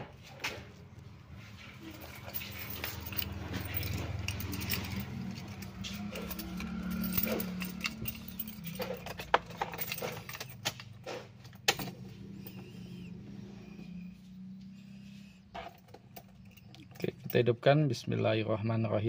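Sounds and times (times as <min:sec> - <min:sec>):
car keys jangling: 0:01.6 - 0:14.1, 0:14.9 - 0:17.5.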